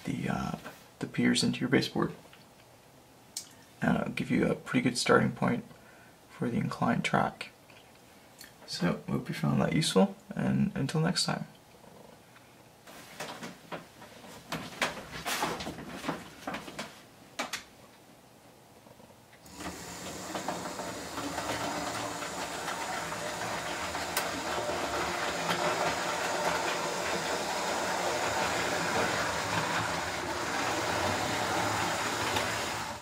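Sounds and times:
model train motor whirring: 0:19.4 - 0:33.0.

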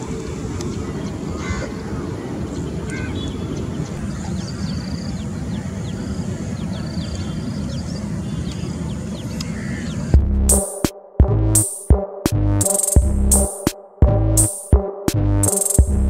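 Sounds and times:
birds chirping: 0:00.1 - 0:10.9
steady low rumble: 0:10.2 - 0:16.0.

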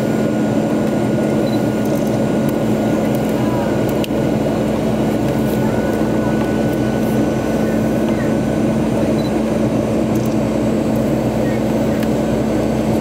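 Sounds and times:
jet engines droning: 0:00.0 - 0:13.0
steady low hum: 0:00.0 - 0:13.0.

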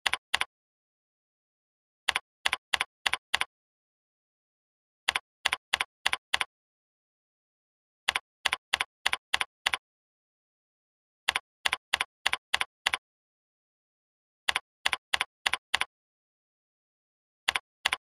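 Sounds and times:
keyboard key clicks: 0:00.0 - 0:00.5, 0:02.1 - 0:03.5, 0:05.1 - 0:06.5, 0:17.5 - 0:18.0.

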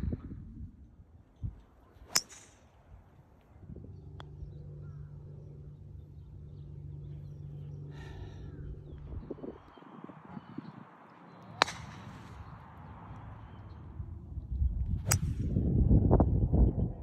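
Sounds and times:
low machine hum: 0:02.0 - 0:10.5
golf club striking ball: 0:02.1 - 0:02.6, 0:11.6 - 0:12.1, 0:15.0 - 0:15.4.

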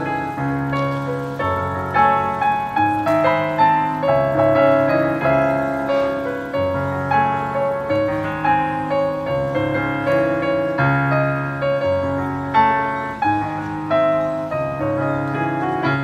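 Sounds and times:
piano playing: 0:00.0 - 0:16.0.

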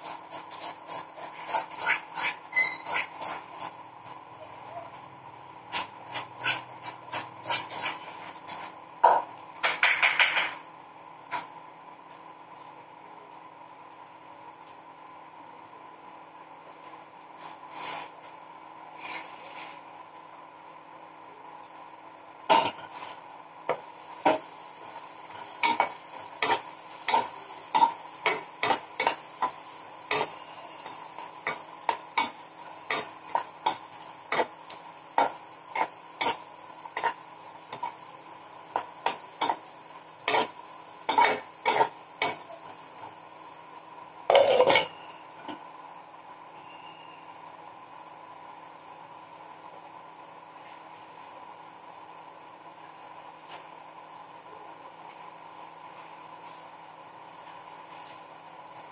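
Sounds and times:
spatula scraping a frying pan: 0:00.0 - 0:03.8, 0:05.7 - 0:08.8, 0:19.0 - 0:19.8, 0:22.5 - 0:23.2, 0:24.2 - 0:38.1, 0:38.7 - 0:43.1.

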